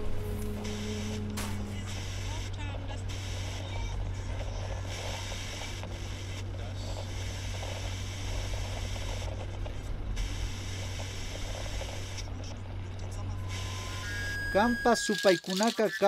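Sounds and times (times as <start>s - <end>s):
road noise: 0.0s - 7.5s
van engine drone: 0.0s - 14.2s.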